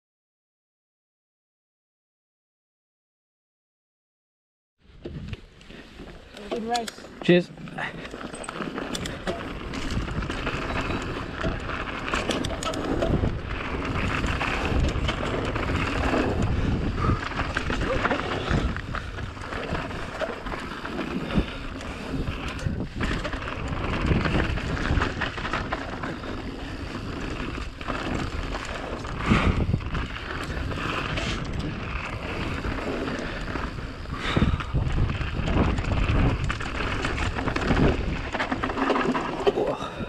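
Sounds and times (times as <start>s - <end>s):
bike rattling: 4.9s - 40.0s
tyres rushing on dirt: 6.1s - 40.0s
wind buffeting microphone: 8.1s - 40.0s.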